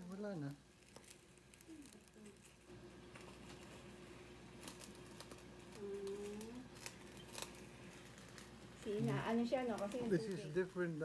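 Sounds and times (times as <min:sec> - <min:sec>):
person humming: 0:05.7 - 0:06.7.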